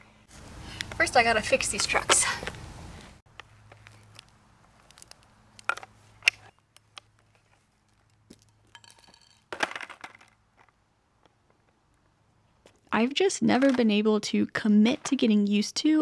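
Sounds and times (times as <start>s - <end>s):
skateboard clattering on asphalt: 8.3s - 10.7s.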